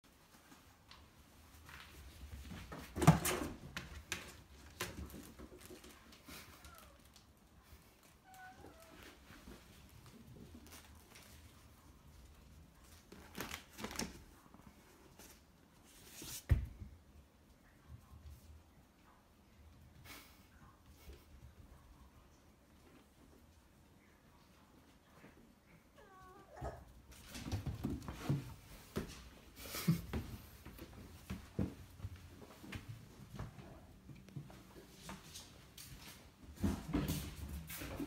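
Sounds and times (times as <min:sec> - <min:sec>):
faint soft rustle: 0:04.0 - 0:25.9.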